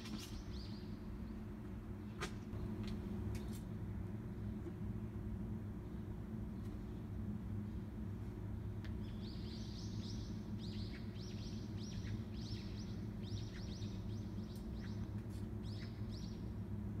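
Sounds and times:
songbird chirping: 0.0 - 1.5, 8.8 - 16.6
low background rumble: 0.0 - 17.0.

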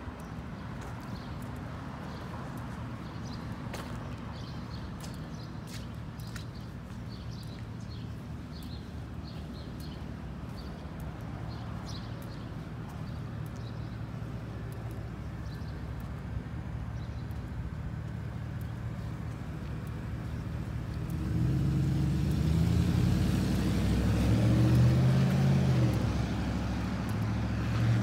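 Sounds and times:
city street traffic rumble: 0.0 - 28.0
footsteps on concrete: 0.2 - 13.7.

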